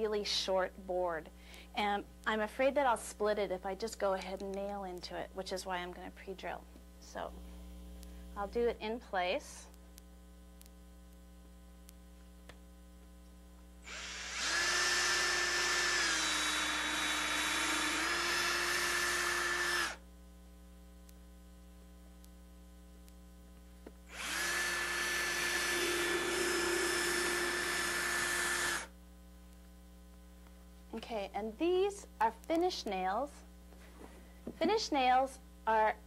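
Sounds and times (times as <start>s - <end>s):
power drill whining: 13.9s - 20.0s, 24.1s - 28.9s.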